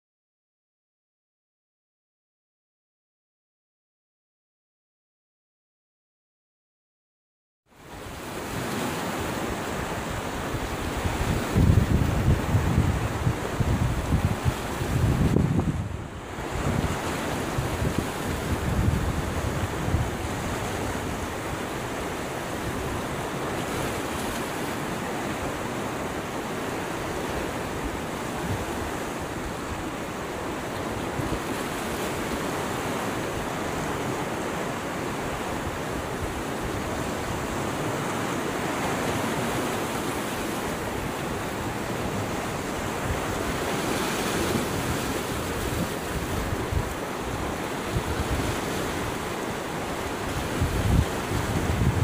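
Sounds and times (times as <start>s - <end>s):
wind buffeting microphone: 10.4s - 23.9s, 40.8s - 52.0s
river rushing over rocks: 16.0s - 52.0s.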